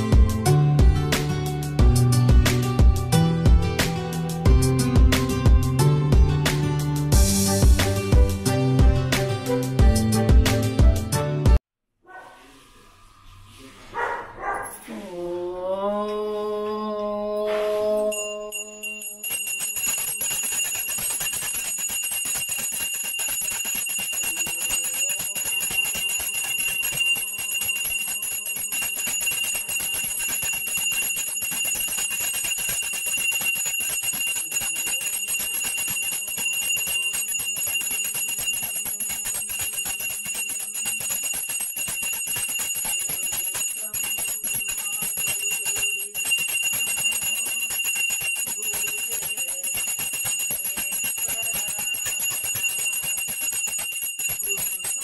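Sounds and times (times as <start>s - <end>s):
bell rung rapidly: 18.0s - 55.0s.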